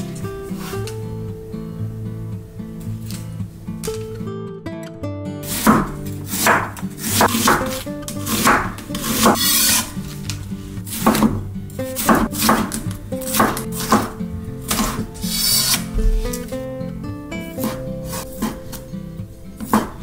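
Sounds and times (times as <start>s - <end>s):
background music: 0.0s - 20.0s
knife chopping on wooden board: 5.5s - 9.8s, 10.9s - 16.3s, 17.6s - 18.8s, 19.6s - 20.0s.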